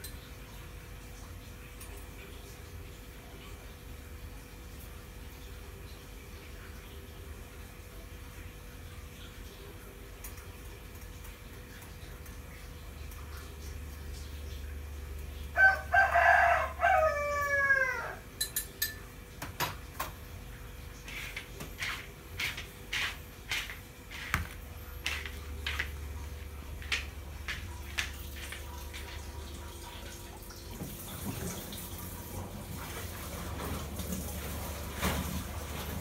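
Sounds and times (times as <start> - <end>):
rooster crowing: 15.5 - 18.3.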